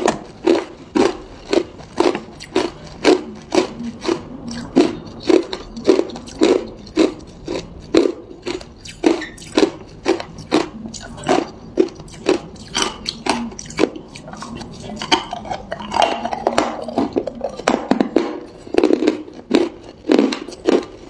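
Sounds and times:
ice cubes crunched by teeth: 0:00.0 - 0:10.7, 0:15.7 - 0:21.0.

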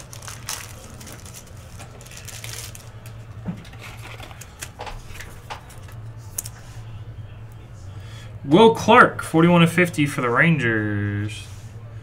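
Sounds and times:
trading cards crinkling and clicking: 0:00.0 - 0:06.6
low steady hum: 0:00.0 - 0:12.0.

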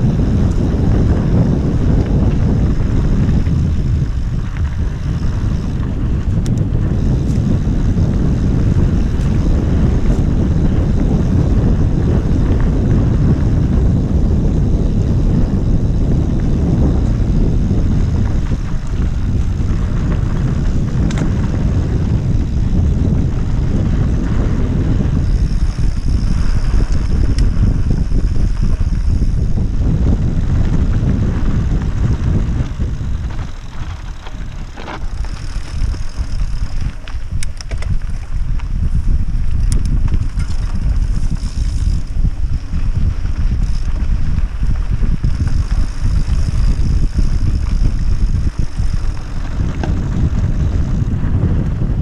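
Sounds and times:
high steady buzz: 0:00.0 - 0:38.0
bike tyre noise: 0:00.0 - 0:52.0
wind buffeting microphone: 0:00.0 - 0:52.0
sharp rattles: 0:14.3 - 0:51.0.

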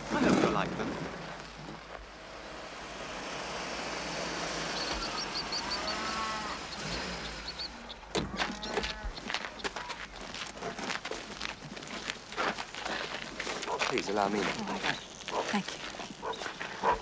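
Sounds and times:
car tyres rolling on gravel: 0:00.0 - 0:17.0
birds chirping: 0:03.9 - 0:17.0.

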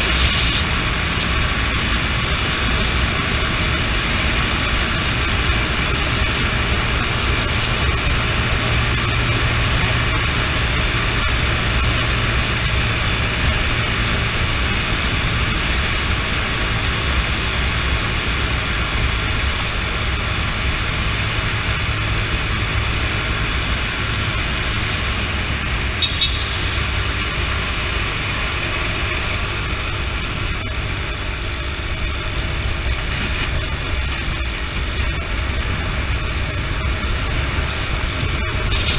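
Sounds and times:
motorcycle engine hum: 0:00.0 - 0:38.9
wind and road noise: 0:00.0 - 0:38.9
short high beep: 0:26.0 - 0:26.8.

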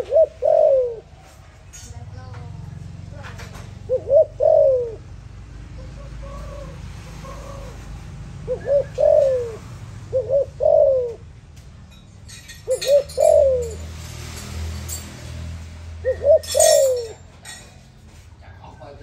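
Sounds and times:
dove cooing: 0:00.0 - 0:01.4, 0:03.2 - 0:11.4, 0:12.6 - 0:13.8, 0:16.0 - 0:17.2.

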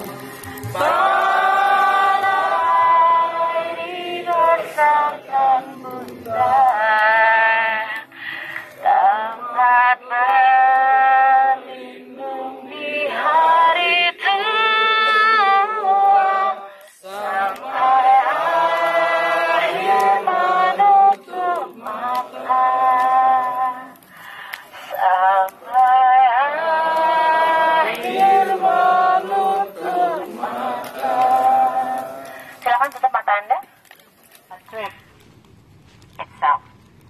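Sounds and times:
person singing long notes: 0:19.8 - 0:24.1.

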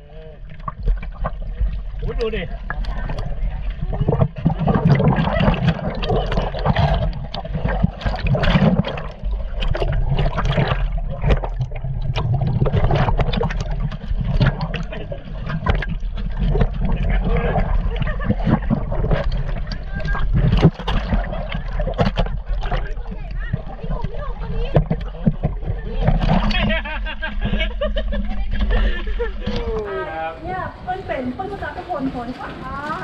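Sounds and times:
water sloshing and gurgling: 0:00.0 - 0:33.0
sharp splashes and knocks: 0:00.5 - 0:26.9.

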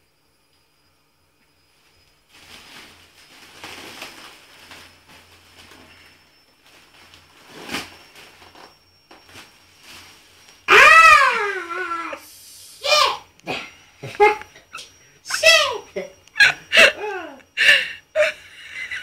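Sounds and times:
foil balloons crinkling: 0:02.2 - 0:12.2, 0:14.0 - 0:16.9
squeaky helium voice cry: 0:10.7 - 0:12.2, 0:14.2 - 0:15.8
helium hissing: 0:11.9 - 0:14.0
person gasping: 0:16.7 - 0:18.1.

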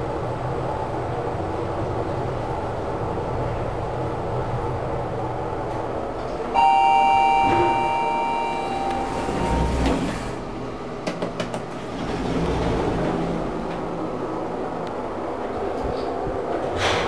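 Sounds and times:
lift cab hum: 0:00.0 - 0:17.0
lift doors sliding open: 0:05.6 - 0:17.0
two-tone lift arrival chime: 0:06.5 - 0:10.3.

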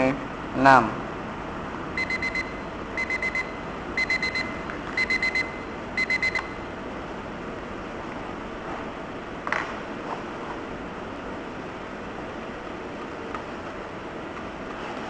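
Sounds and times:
alarm clock beeping: 0:02.0 - 0:06.6.

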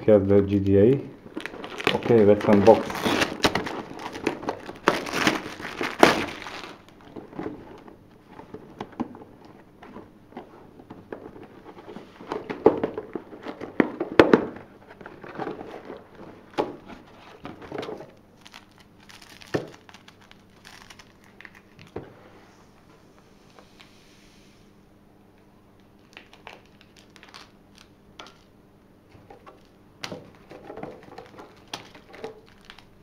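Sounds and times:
plastic wrap tearing and crinkling: 0:00.6 - 0:07.8, 0:15.1 - 0:22.0, 0:25.9 - 0:28.5, 0:29.4 - 0:33.0
cardboard box opening: 0:01.4 - 0:06.8.

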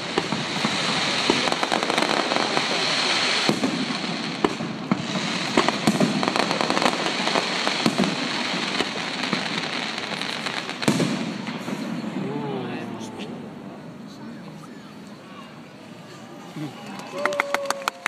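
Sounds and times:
fireworks pops and bangs: 0:00.0 - 0:12.3
fireworks crackling: 0:00.0 - 0:15.2.

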